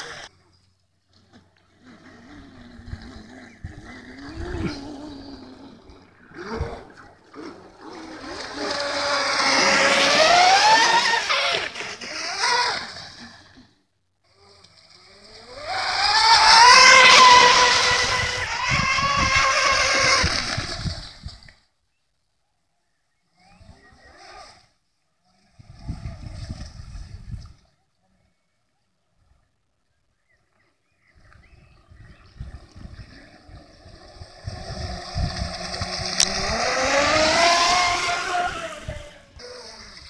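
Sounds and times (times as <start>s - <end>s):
electric boat motors whining: 1.7s - 13.7s, 14.3s - 21.0s, 32.2s - 40.0s.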